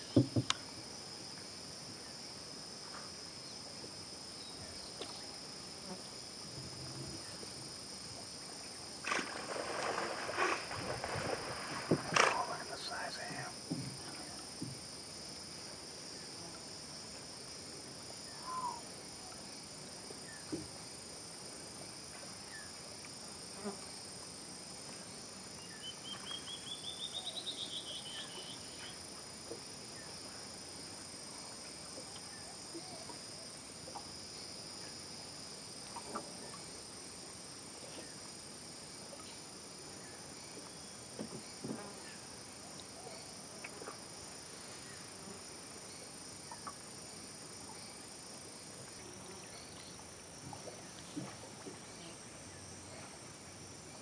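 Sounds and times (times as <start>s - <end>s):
faint calls and knocks: 0.0s - 0.6s.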